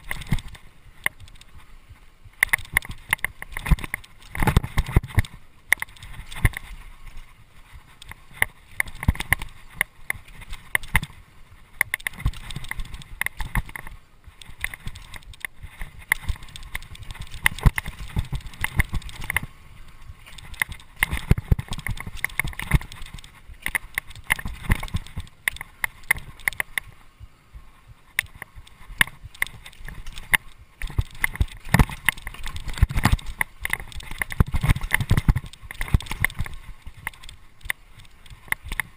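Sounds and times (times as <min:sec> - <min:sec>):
mountain bike rattling over bumps: 0:00.0 - 0:27.0, 0:27.9 - 0:38.9.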